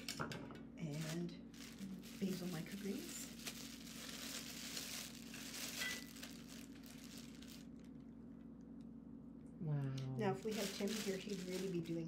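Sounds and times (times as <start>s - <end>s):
plastic bag crinkling: 0.9s - 8.4s, 10.2s - 12.0s.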